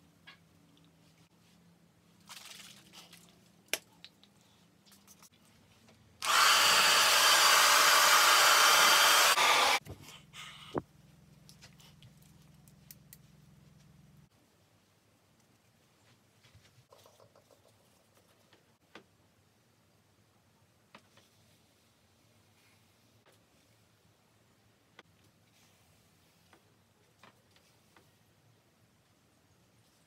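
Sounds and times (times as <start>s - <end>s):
hair dryer running: 6.2s - 9.8s
faint rustles and taps: 15.4s - 19.1s.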